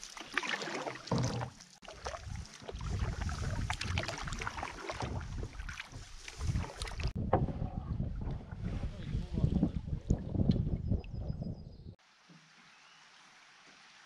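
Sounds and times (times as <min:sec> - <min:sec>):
canoe paddle splashing in water: 0:00.0 - 0:07.2
wind rumble on microphone: 0:02.2 - 0:12.0.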